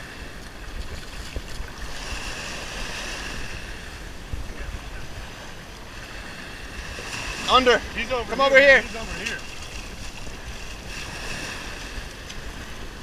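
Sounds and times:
surf washing onto beach: 0.0 - 13.0
wind rumbling on microphone: 0.0 - 13.0.

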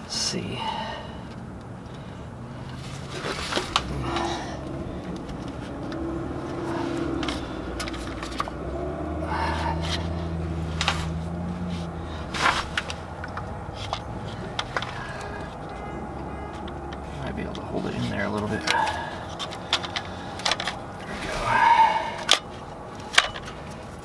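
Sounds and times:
metal clicks and knocks: 12.4 - 15.9, 16.5 - 21.1, 22.2 - 24.0.

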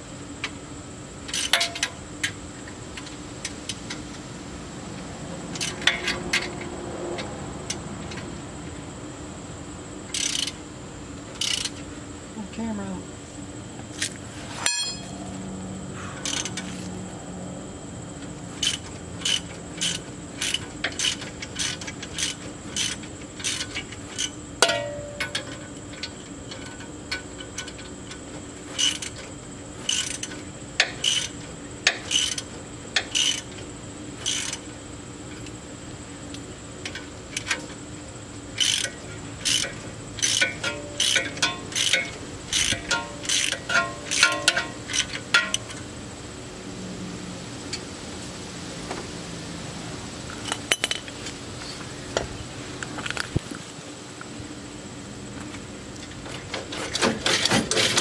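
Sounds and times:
ratchet wrench clicking: 1.3 - 2.4, 3.0 - 4.2, 5.5 - 8.2, 10.1 - 10.6, 11.3 - 11.9, 16.2 - 16.8, 18.6 - 33.6, 34.2 - 34.7, 36.8 - 37.8, 38.5 - 45.8.

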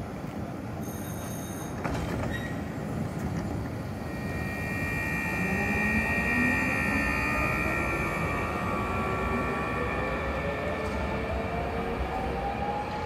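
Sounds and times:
tram doors clunking shut: 1.0 - 4.0
steady electrical whine: 2.8 - 13.0
tram motor whine rising: 3.0 - 13.0
short high tone: 4.0 - 11.7.

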